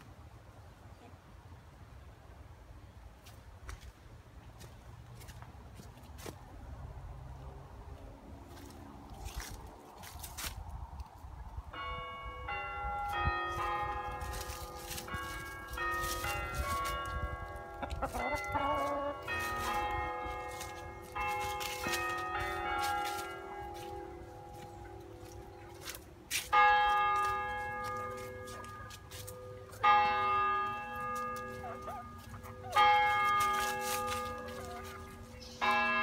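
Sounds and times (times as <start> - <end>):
church bells ringing: 11.7 - 36.0.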